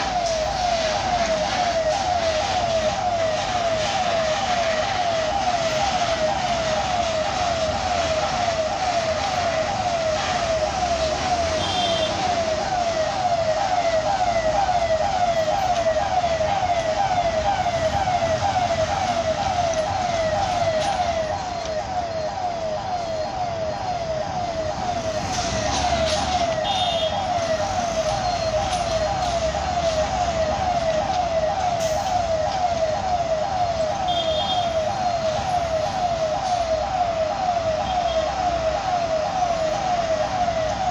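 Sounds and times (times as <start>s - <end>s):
crossing warning siren wailing: 0.0s - 40.9s
trucks and motorbikes rumbling: 0.0s - 40.9s.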